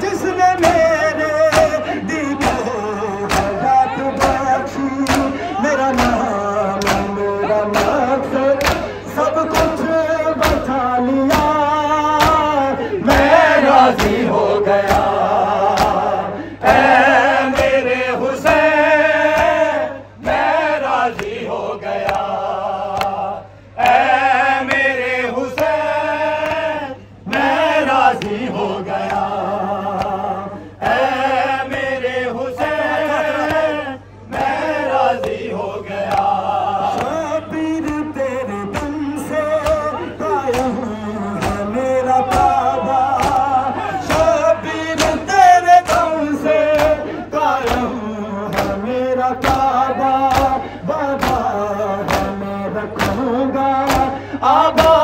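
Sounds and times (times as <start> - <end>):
crowd singing along: 0.0 - 55.0
male voices chanting over loudspeaker: 0.0 - 55.0
chest-beating slaps: 3.3 - 6.2, 6.8 - 8.0, 8.6 - 8.9, 15.7 - 16.0, 40.5 - 41.7, 43.2 - 44.4, 45.0 - 46.1, 46.7 - 48.8, 53.8 - 54.2.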